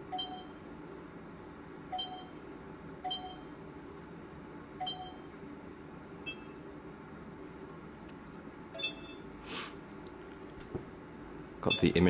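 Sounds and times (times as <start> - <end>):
high electronic beeps: 0.0 - 0.6, 4.8 - 5.2, 6.3 - 6.6, 8.8 - 9.3, 11.6 - 12.0
low background hum: 0.0 - 12.0.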